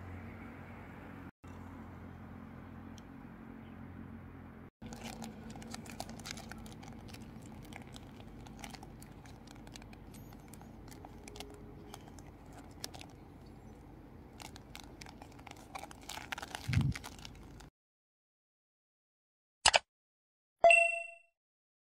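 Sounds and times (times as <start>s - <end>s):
plastic ball skin crinkling: 4.8s - 17.7s.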